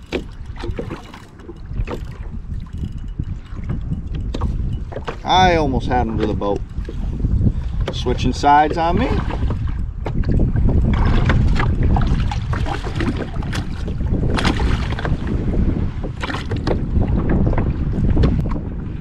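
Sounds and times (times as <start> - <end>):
fish splashing and knocking: 0.0 - 5.3, 8.7 - 15.2, 16.0 - 16.8
water splashing against kayak: 0.0 - 19.0
wind rumbling on microphone: 0.0 - 19.0.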